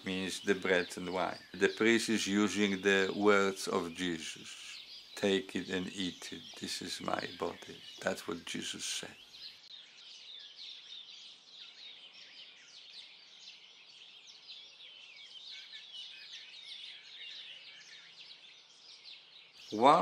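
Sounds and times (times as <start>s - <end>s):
birds chirping: 0.0s - 20.0s.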